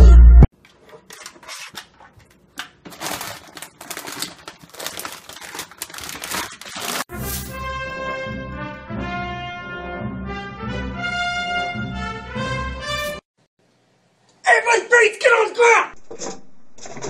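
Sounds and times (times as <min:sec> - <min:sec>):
plastic packaging crinkling: 0:00.7 - 0:07.1
brass music: 0:07.1 - 0:13.2.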